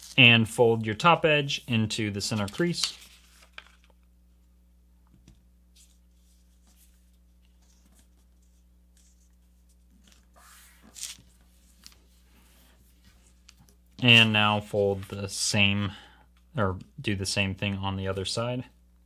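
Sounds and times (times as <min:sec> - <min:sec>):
paper rustling as folded: 0:00.0 - 0:00.2, 0:02.2 - 0:04.0, 0:05.8 - 0:14.3
low steady hum: 0:00.0 - 0:19.0
paper swishes: 0:05.8 - 0:13.6.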